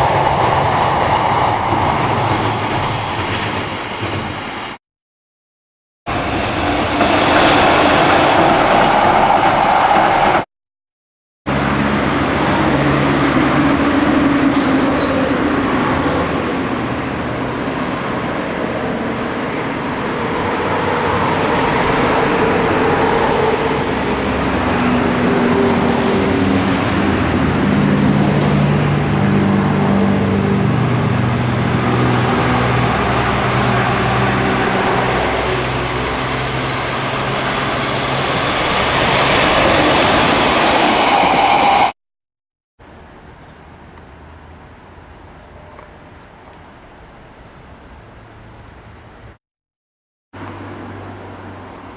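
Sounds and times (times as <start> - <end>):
rail and wheel noise: 0.0 - 4.8, 6.1 - 10.5, 11.5 - 42.0, 42.8 - 49.4, 50.4 - 51.9
diesel locomotive engine droning: 11.5 - 41.9.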